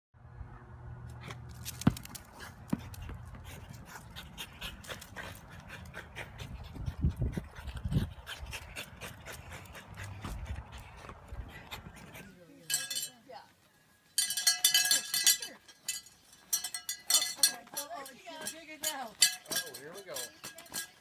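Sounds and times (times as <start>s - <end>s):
ball knocking on pavers: 1.3s - 3.4s
dog panting hard: 2.4s - 12.4s.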